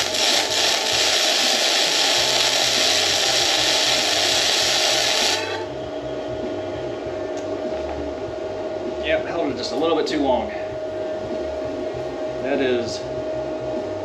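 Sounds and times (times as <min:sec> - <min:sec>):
welding arc crackling hiss: 0:00.0 - 0:05.7
welder machine hum: 0:00.0 - 0:14.0.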